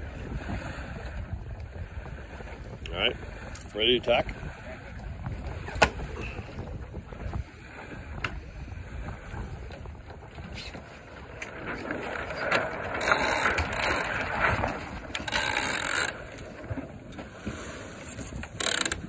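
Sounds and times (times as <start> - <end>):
rope ratcheting through blocks: 13.0 - 14.2, 15.2 - 16.2, 18.5 - 19.0.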